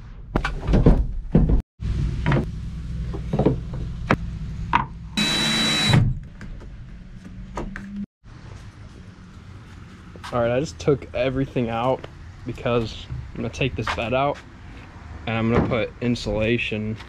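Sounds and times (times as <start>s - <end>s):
power tool whine: 5.2s - 6.1s.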